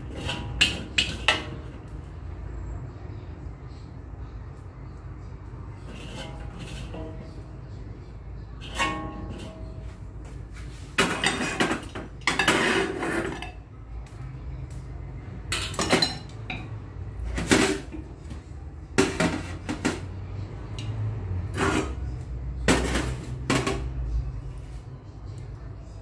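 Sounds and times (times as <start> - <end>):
metal kitchenware clanking and scraping: 0.0 - 2.8, 5.5 - 13.8, 15.4 - 24.6.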